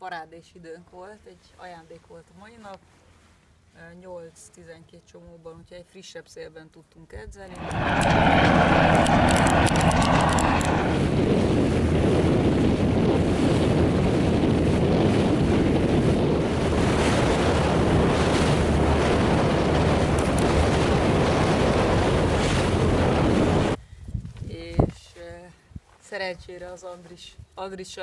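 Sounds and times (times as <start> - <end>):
wind buffeting microphone: 7.4 - 26.5
rushing water and waves: 7.5 - 23.8.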